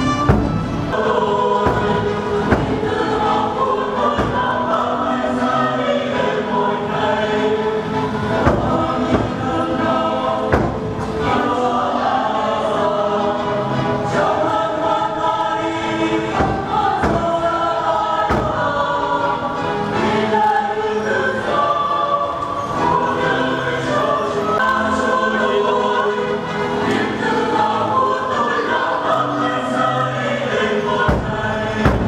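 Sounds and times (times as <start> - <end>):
choir singing a hymn: 0.0 - 32.0
dull thumps: 0.2 - 0.8, 1.6 - 3.2, 4.1 - 4.6, 8.4 - 9.6, 10.5 - 11.1, 16.4 - 17.5, 18.2 - 18.8, 31.1 - 32.0.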